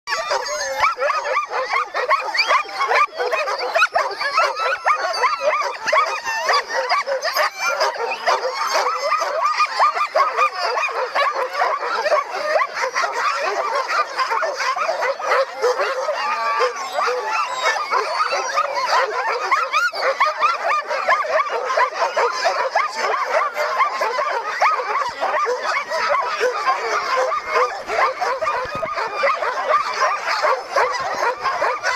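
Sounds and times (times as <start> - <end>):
dogs barking and yipping: 0.1 - 31.9.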